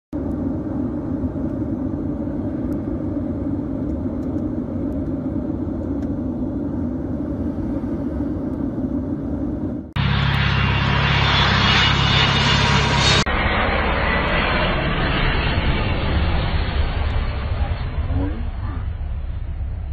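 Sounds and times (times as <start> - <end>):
airliner cabin rumble: 0.1 - 19.9
jet flying low roaring: 0.1 - 19.9.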